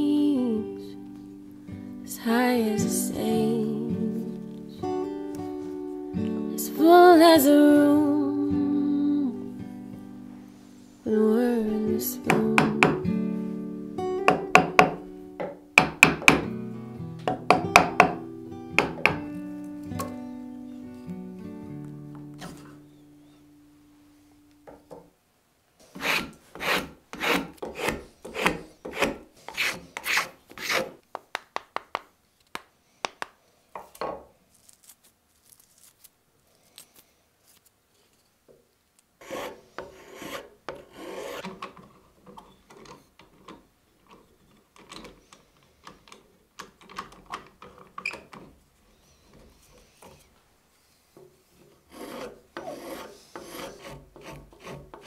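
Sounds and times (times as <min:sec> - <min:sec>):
spokeshave scraping wood: 0:25.8 - 0:31.0, 0:39.2 - 0:41.9, 0:49.6 - 0:55.0.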